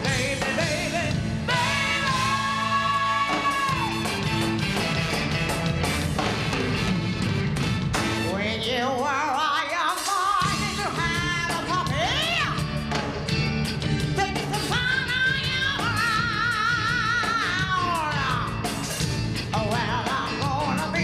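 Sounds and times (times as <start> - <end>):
live rock and soul band: 0.0 - 21.0.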